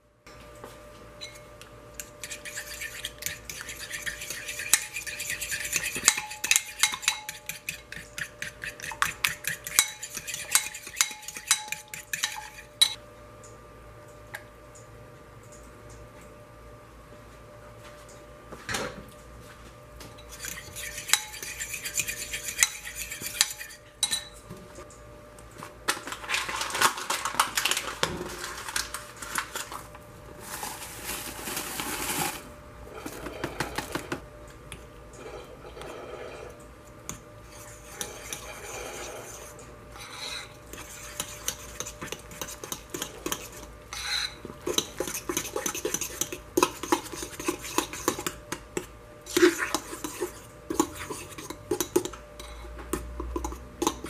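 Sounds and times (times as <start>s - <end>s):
metal spoon stirring in bowl: 2.0s - 13.0s, 20.2s - 24.4s, 35.2s - 54.0s.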